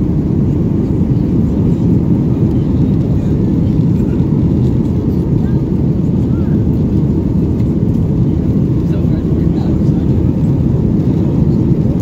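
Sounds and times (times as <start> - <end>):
jet engine roar in cabin: 0.0 - 12.0.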